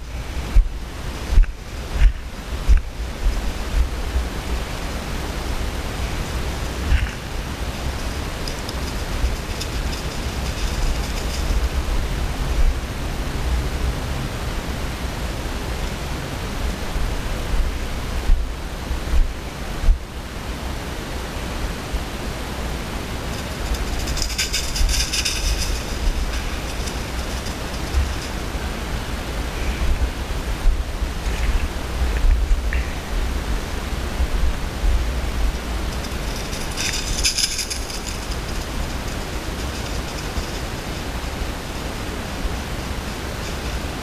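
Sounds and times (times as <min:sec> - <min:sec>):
wind buffeting microphone: 0:22.5 - 0:44.0.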